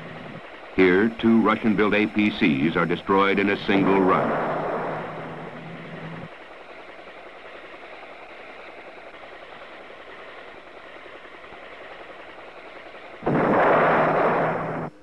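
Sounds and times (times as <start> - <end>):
helicopter in flight: 0.0 - 15.0
loud blast of noise: 3.6 - 6.3, 13.2 - 15.0.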